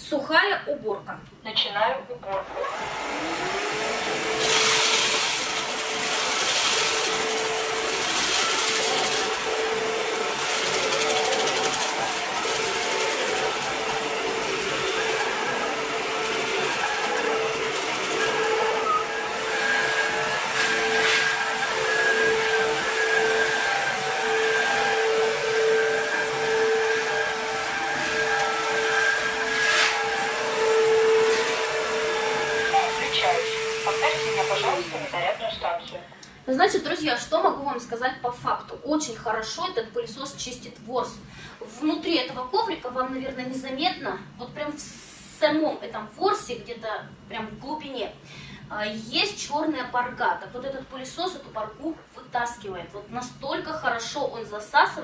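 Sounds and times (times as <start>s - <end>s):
vacuum cleaner motor whine: 2.2s - 37.3s
vacuum suction hiss: 28.6s - 36.5s.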